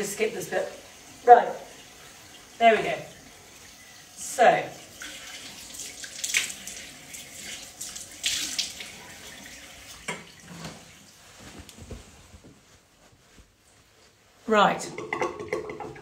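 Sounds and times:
sink tap running: 0.0s - 10.5s, 14.9s - 16.0s
towel drying face: 0.0s - 14.8s.

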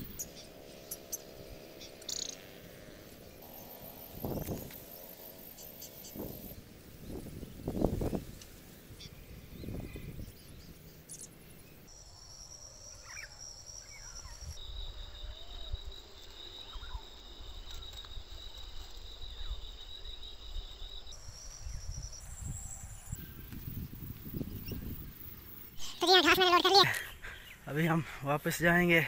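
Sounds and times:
insects calling: 0.0s - 29.0s
wind rumble on microphone: 4.0s - 4.8s, 6.1s - 11.0s, 21.2s - 25.7s
bird chirps: 9.0s - 18.6s.

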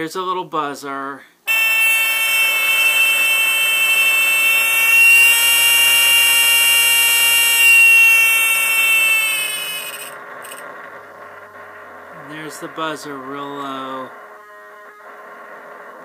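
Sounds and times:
electronic buzzer tone: 1.5s - 10.7s.

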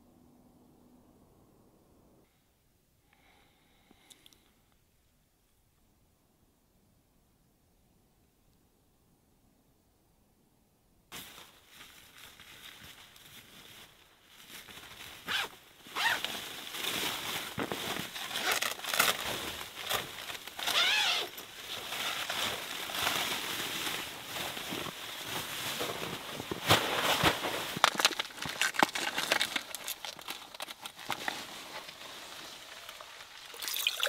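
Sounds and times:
clothing and gear rustling: 11.2s - 33.4s.

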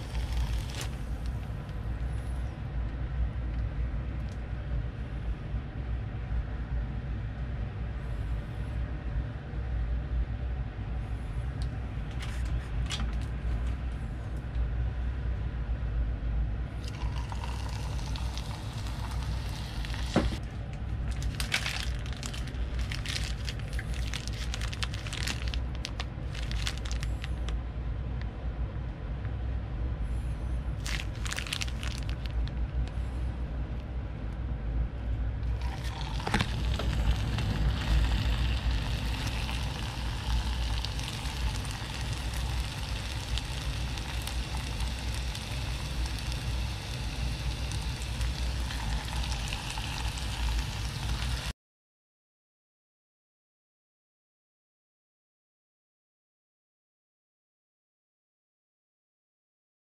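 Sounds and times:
batter sizzling in hot oil: 0.0s - 1.3s, 16.8s - 20.4s, 35.5s - 51.5s
crackling bursts: 0.0s - 1.8s, 21.0s - 27.5s, 30.8s - 32.6s, 35.5s - 51.5s
low kitchen rumble: 0.0s - 51.5s.

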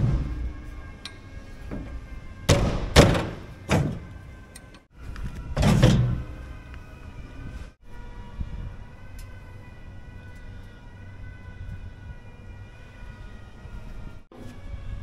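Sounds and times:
metal door clunks: 1.7s - 4.2s, 5.6s - 6.4s.

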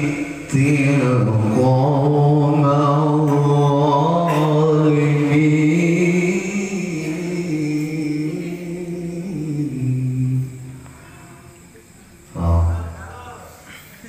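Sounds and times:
man reciting melodically: 0.0s - 11.0s.

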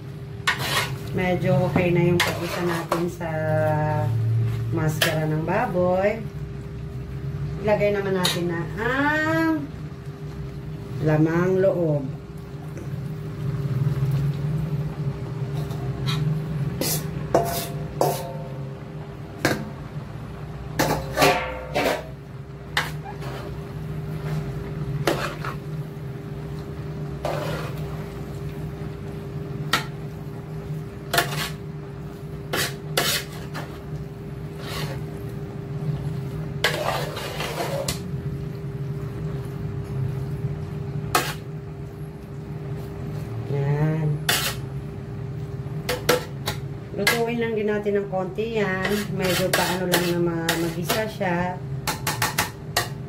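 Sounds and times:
metal spoon scraping pot: 0.5s - 1.1s, 2.1s - 3.1s, 16.0s - 18.4s, 20.8s - 22.2s, 22.8s - 23.6s, 27.2s - 27.8s, 31.1s - 31.6s, 32.5s - 33.7s, 34.5s - 35.0s, 36.6s - 38.0s, 44.2s - 44.6s, 48.8s - 51.1s
metal bowl clanking on pot: 16.8s - 18.6s, 20.8s - 22.2s.

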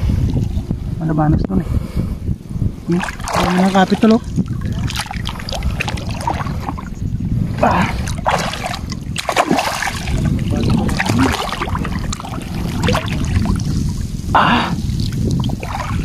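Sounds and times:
steady low rumble: 0.0s - 16.0s
water splashing and sloshing: 2.8s - 16.0s.

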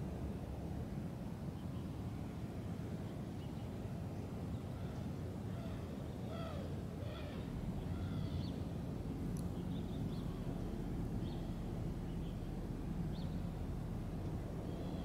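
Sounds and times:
low outdoor rumble: 0.0s - 15.0s
small click: 9.3s - 9.5s.

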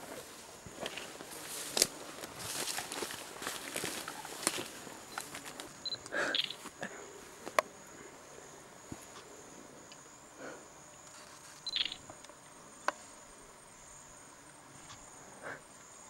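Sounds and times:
soft rustles and clicks: 0.0s - 6.8s
insects chirring: 0.0s - 16.0s.

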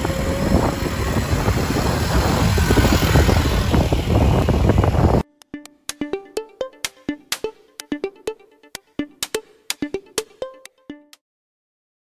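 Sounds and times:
quad bike engines rumbling: 0.0s - 5.2s.

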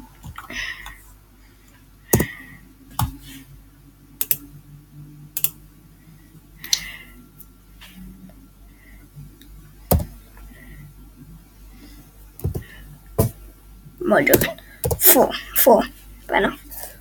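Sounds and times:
keyboard keystrokes: 9.9s - 10.1s.

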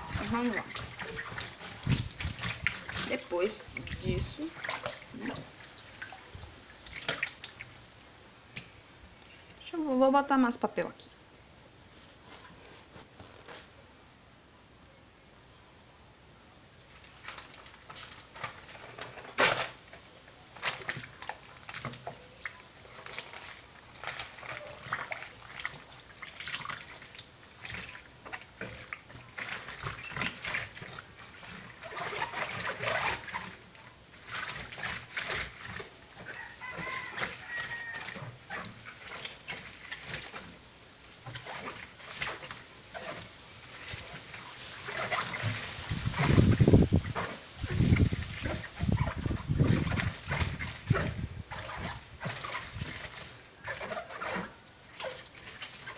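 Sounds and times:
wet paper scrubbed on washboard: 0.0s - 5.0s, 22.9s - 40.6s, 41.2s - 55.9s.

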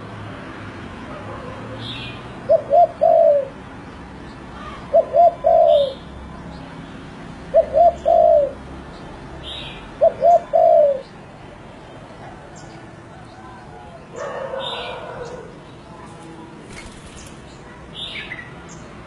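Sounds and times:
dove cooing: 2.5s - 3.6s, 4.6s - 6.0s, 7.5s - 8.6s, 10.0s - 11.1s, 13.5s - 15.6s.

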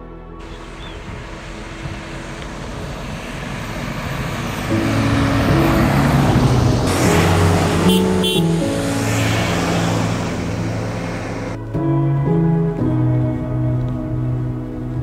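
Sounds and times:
background music with low notes: 0.0s - 3.7s, 4.6s - 15.0s
car passing on asphalt: 0.4s - 11.9s.

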